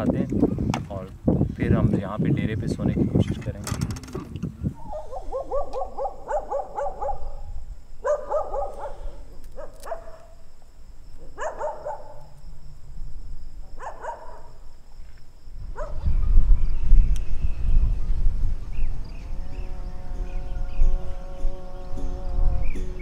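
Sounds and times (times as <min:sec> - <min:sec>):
dog barking: 0:04.8 - 0:07.4, 0:08.0 - 0:10.4, 0:11.3 - 0:12.3, 0:13.8 - 0:14.6, 0:15.8 - 0:16.1.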